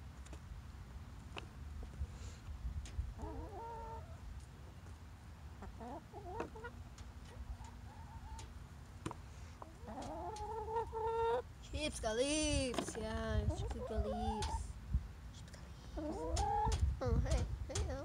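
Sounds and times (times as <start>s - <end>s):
hens clucking: 3.1s - 4.8s, 5.5s - 11.5s, 12.7s - 14.7s, 15.9s - 18.0s.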